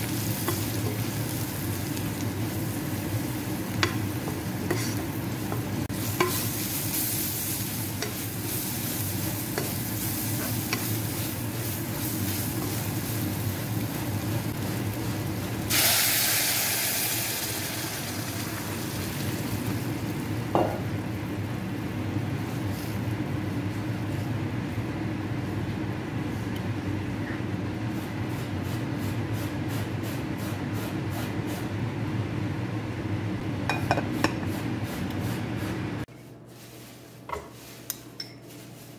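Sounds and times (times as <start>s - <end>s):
vegetables sizzling in a saucepan: 0.0s - 21.4s
steady simmer: 0.0s - 38.9s
spatula stirring: 2.4s - 15.6s, 36.1s - 38.9s
liquid hissing in hot pan: 15.6s - 19.4s.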